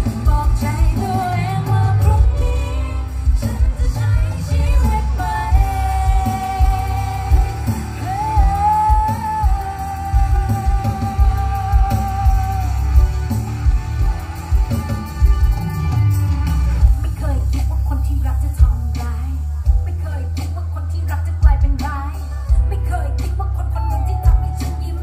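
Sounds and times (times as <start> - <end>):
woman singing a long note: 0.0 - 13.3
live band with drum kit: 0.0 - 25.0.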